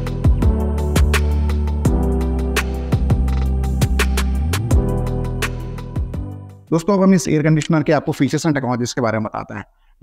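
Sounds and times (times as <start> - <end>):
held bass notes: 0.0 - 6.6.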